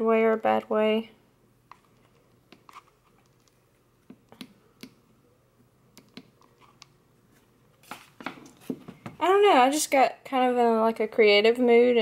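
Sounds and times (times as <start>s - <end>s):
crafting clicks and taps: 1.7s - 5.0s, 6.0s - 7.0s.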